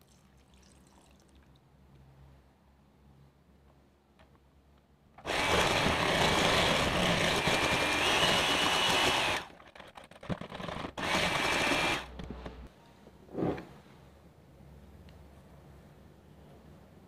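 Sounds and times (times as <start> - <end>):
electric hand mixer running: 5.3 - 9.5, 10.6 - 12.1.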